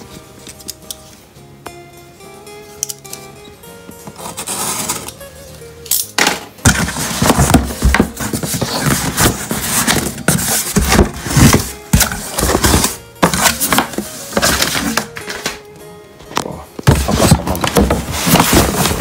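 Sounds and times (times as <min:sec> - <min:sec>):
background music: 0:00.0 - 0:19.0
cardboard box being opened: 0:06.7 - 0:15.1, 0:16.8 - 0:19.0.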